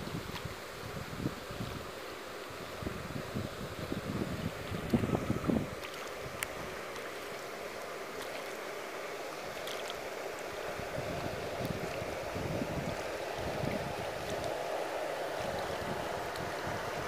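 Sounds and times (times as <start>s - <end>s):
pool water splashing and lapping: 0.0s - 17.0s
faint drip-like clicks: 5.8s - 8.6s.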